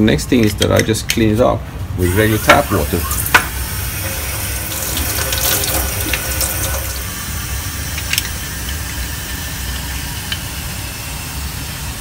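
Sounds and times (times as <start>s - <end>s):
tap water splashing over metal: 3.2s - 7.1s.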